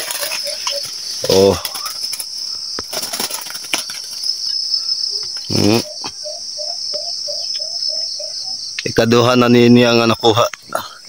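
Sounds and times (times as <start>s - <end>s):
dove cooing: 0.0s - 2.3s, 5.1s - 8.6s
crickets chirring: 0.0s - 11.0s.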